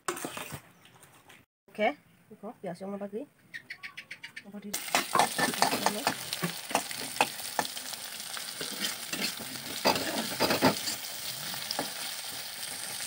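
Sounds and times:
spatula scraping a pan: 0:00.0 - 0:00.6, 0:04.8 - 0:07.7, 0:08.5 - 0:13.0
onions sizzling in oil: 0:04.8 - 0:13.0.

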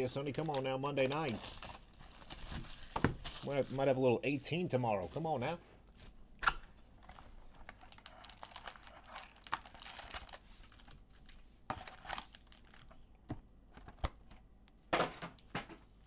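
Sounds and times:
wrappers crinkling: 0:00.2 - 0:06.2, 0:07.0 - 0:12.9.

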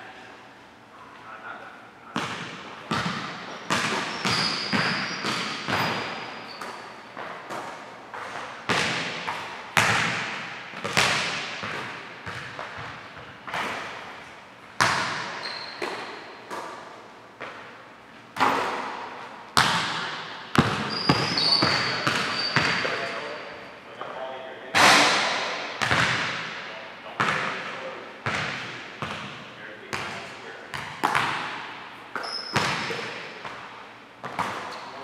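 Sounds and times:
sneaker squeaks: 0:02.1 - 0:10.1, 0:10.8 - 0:23.8, 0:32.0 - 0:35.0
basketball bouncing on hardwood floor: 0:02.2 - 0:13.9, 0:14.8 - 0:16.7, 0:19.6 - 0:23.0, 0:25.8 - 0:26.6, 0:28.2 - 0:31.6, 0:32.2 - 0:33.6.

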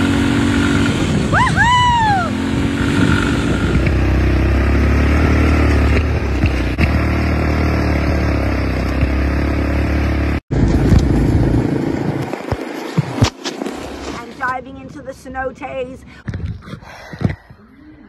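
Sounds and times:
atv engine running: 0:00.0 - 0:15.6.

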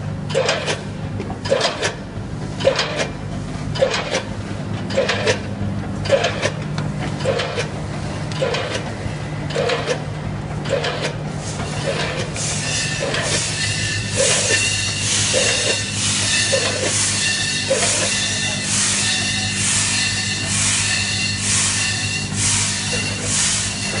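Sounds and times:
packing machine hum: 0:00.0 - 0:24.0
machine clack and thud: 0:00.3 - 0:02.0, 0:02.6 - 0:07.7, 0:08.4 - 0:08.9, 0:09.5 - 0:11.2, 0:11.8 - 0:12.3
hiss: 0:12.4 - 0:24.0.

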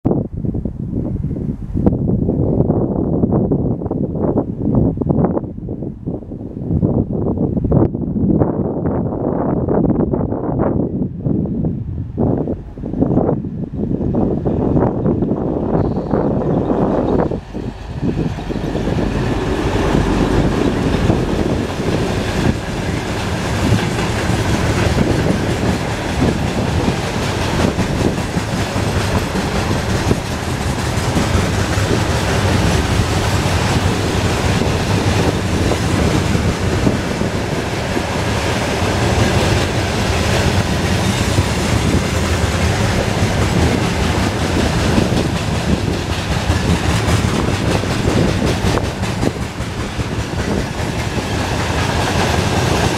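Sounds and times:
diesel locomotive passing: 0:12.2 - 0:52.9
train wheels rumbling on rails: 0:12.2 - 0:52.9
clickety-clack of rail joints: 0:15.1 - 0:52.9.

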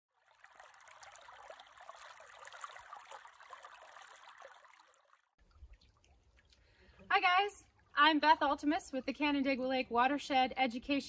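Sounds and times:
stream flowing over stones: 0:00.1 - 0:05.9.

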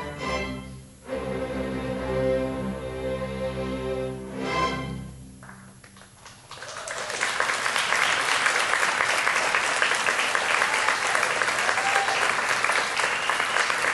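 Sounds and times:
orchestra playing: 0:00.0 - 0:05.4
audience applause: 0:05.4 - 0:13.9.

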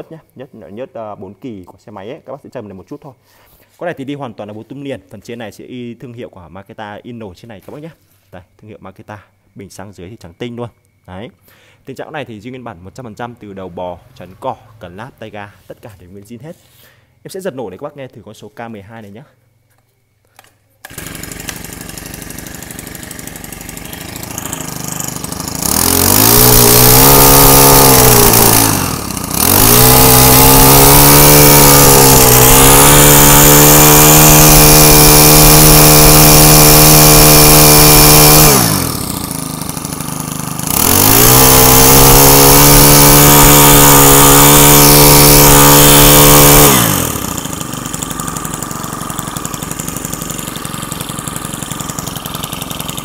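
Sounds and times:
brush cutter engine revving: 0:20.4 - 0:53.0.

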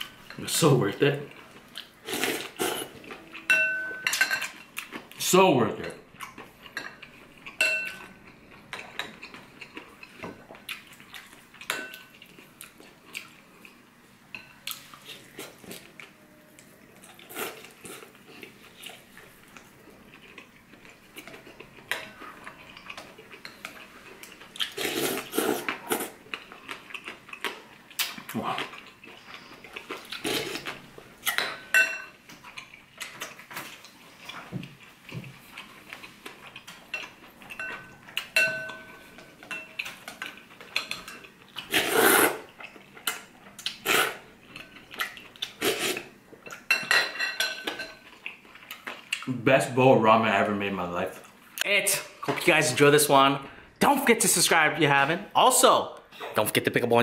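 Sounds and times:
utensils clinking on ceramic bowl: 0:03.4 - 0:04.6, 0:06.7 - 0:08.1, 0:36.9 - 0:41.3, 0:46.5 - 0:48.1
eating sounds: 0:17.0 - 0:31.4.

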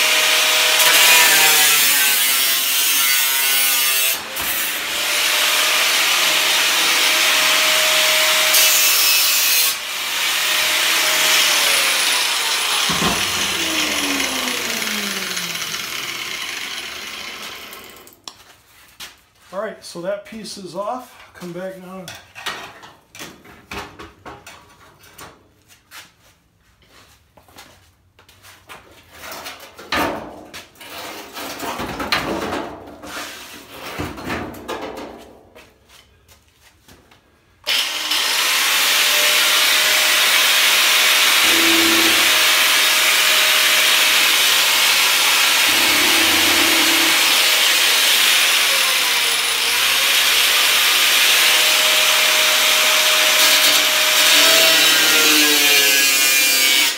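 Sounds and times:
angle grinder cutting steel: 0:00.0 - 0:18.2, 0:37.7 - 0:56.9.

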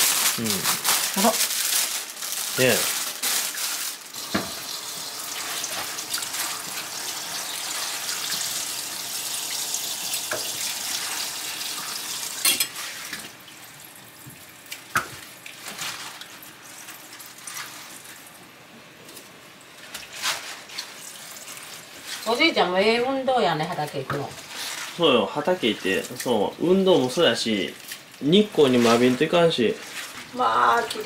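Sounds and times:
tap water running into sink: 0:04.1 - 0:13.6.

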